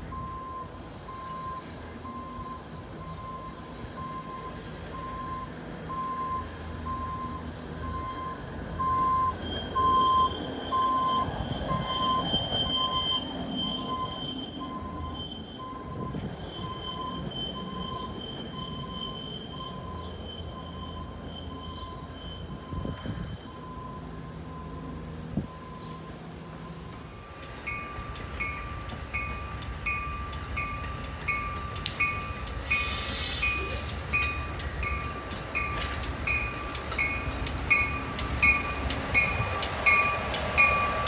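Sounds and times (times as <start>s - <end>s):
backup alarm beeping: 0.1s - 26.9s
rail wheels squealing on rails: 0.6s - 41.0s.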